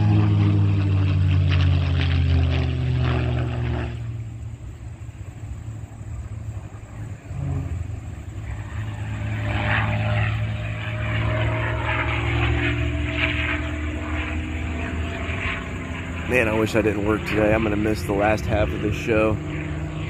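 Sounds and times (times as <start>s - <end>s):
propeller airplane engine flying by: 0.0s - 20.0s.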